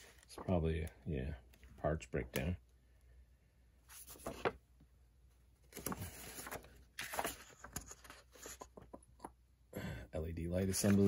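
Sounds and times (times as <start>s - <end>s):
paper pages flipping: 3.9s - 4.6s, 5.6s - 9.0s, 10.7s - 11.0s.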